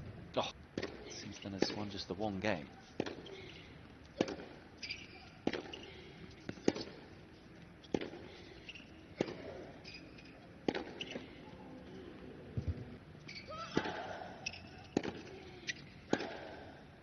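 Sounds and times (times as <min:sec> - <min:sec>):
tennis racquet striking ball: 0:03.0 - 0:03.3, 0:04.2 - 0:04.6, 0:05.4 - 0:05.8, 0:06.5 - 0:07.0, 0:10.6 - 0:11.3, 0:13.7 - 0:15.3, 0:16.1 - 0:16.6.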